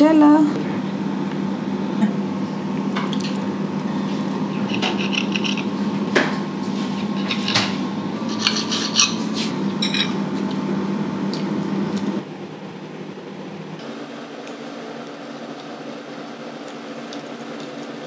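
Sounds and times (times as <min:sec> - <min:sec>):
steady low hum: 0:00.0 - 0:18.0
cutlery clinking on a plate: 0:04.7 - 0:05.7, 0:09.8 - 0:10.2.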